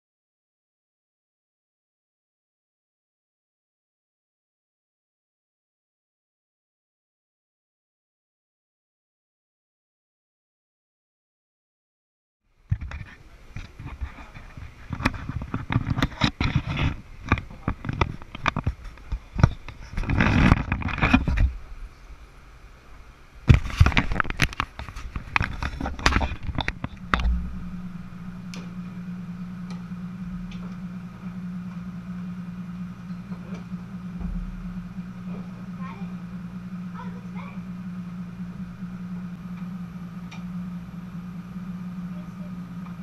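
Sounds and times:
low room hum: 0:12.5 - 0:43.0.

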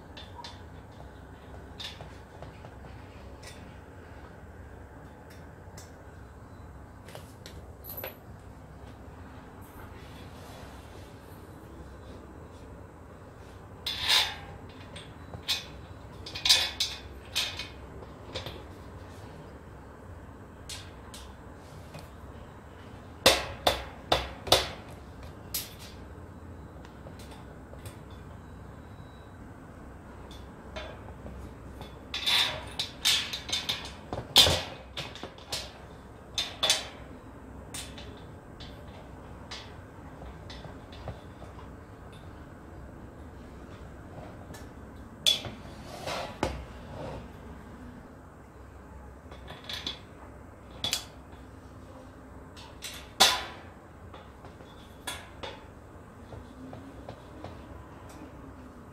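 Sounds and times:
metal parts clinking: 0:07.8 - 0:08.2.

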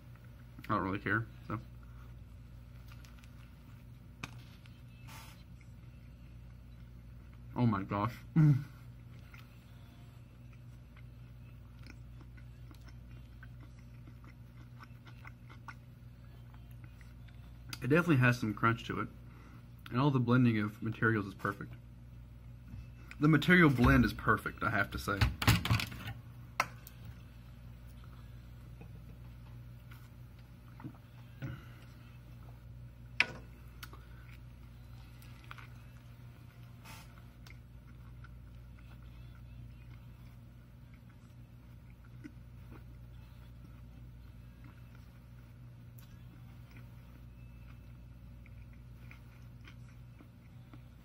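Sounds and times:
steady low hum: 0:00.0 - 0:51.0
person chewing food: 0:08.8 - 0:17.8, 0:26.7 - 0:32.8, 0:33.5 - 0:51.0.

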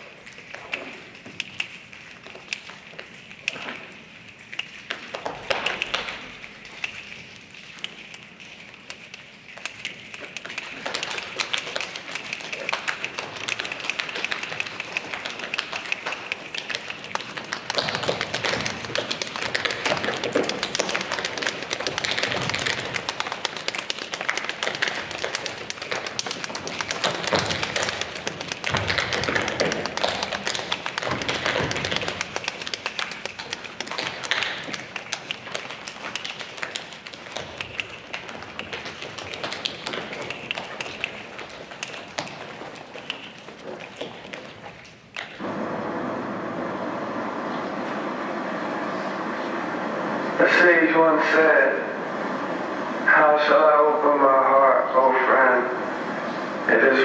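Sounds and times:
continuous tapping: 0:00.0 - 0:45.4.

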